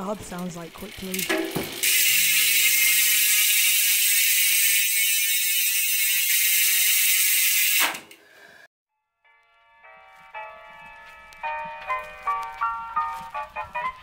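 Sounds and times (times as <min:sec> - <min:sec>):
bicycle freehub buzzing: 0:00.0 - 0:08.7.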